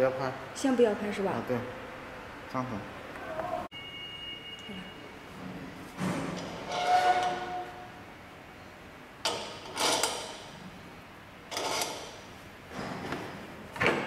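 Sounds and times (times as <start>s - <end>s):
metallic ringing tone: 3.7s - 5.2s
metal parts scraping and clanking: 6.0s - 7.8s, 9.3s - 10.5s, 11.5s - 13.0s.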